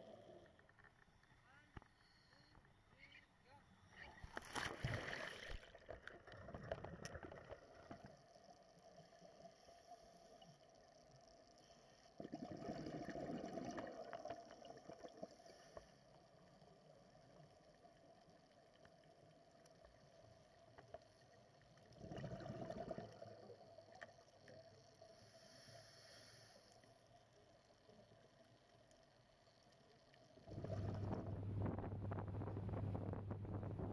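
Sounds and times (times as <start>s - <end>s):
underwater bubble bursts: 4.7s - 9.4s, 12.1s - 15.4s, 21.4s - 24.9s, 30.2s - 33.9s.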